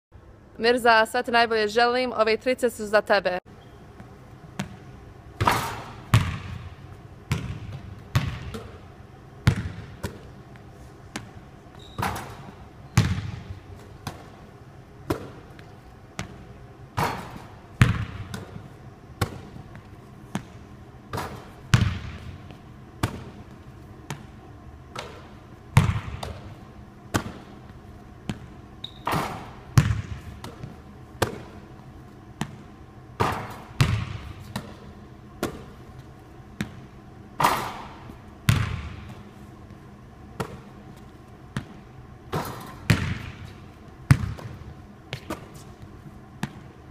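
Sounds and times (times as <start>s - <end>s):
basketball bouncing on hard court: 4.5s - 4.8s, 5.4s - 10.4s, 11.1s - 14.5s, 15.1s - 24.3s, 24.9s - 31.6s, 32.4s - 35.8s, 36.6s - 39.2s, 40.4s - 45.7s, 46.4s - 46.8s.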